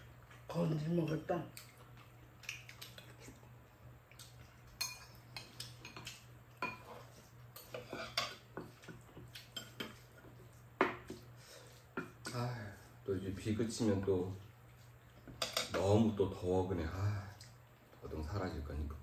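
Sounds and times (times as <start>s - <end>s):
utensils clinking on ceramic bowls: 4.8s - 7.0s.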